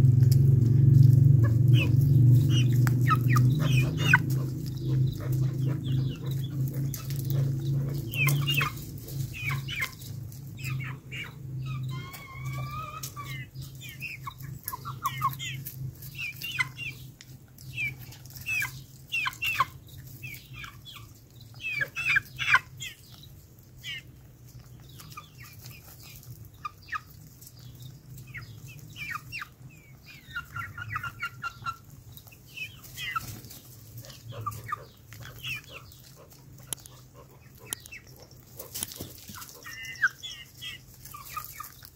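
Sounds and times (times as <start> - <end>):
steady low hum: 0.0 - 11.9
chickens clucking: 0.0 - 41.9
beaks tapping on peel: 2.6 - 8.9.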